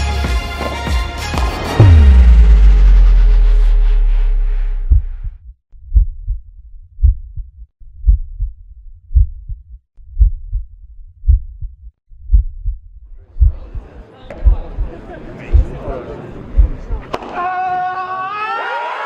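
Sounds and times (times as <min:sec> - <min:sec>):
music: 0:00.0 - 0:04.7
heartbeat thumps: 0:01.8 - 0:17.0.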